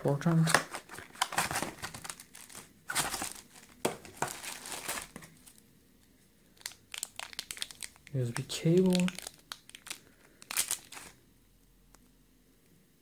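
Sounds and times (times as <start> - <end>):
cardboard and plastic rustling: 0.3 - 5.6, 6.6 - 11.2.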